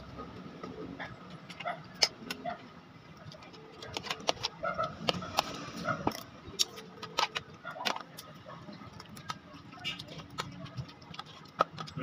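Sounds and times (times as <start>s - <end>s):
wet chewing clicks: 0.7s - 12.0s.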